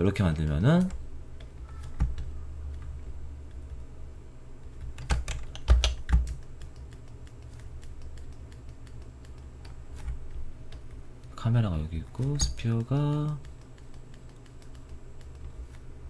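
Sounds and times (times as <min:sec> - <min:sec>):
steady low hum: 0:00.0 - 0:16.0
keyboard keys clicking: 0:04.7 - 0:11.4, 0:12.2 - 0:15.8.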